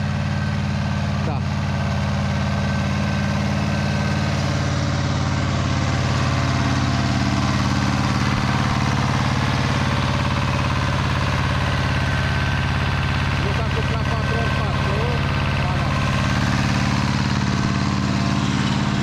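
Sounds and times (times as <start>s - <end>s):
tractor engine running: 0.0s - 19.0s.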